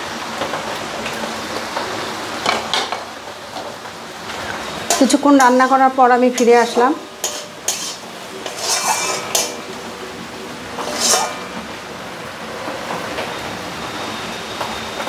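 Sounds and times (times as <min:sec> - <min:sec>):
metal spatula scraping a pan: 0:04.8 - 0:09.8, 0:10.7 - 0:11.8.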